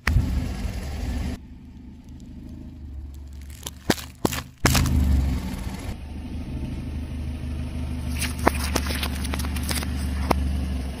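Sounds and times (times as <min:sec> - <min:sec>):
car engine and tyre rumble: 0:00.0 - 0:11.0
fruit bursting under tyre: 0:03.1 - 0:05.4.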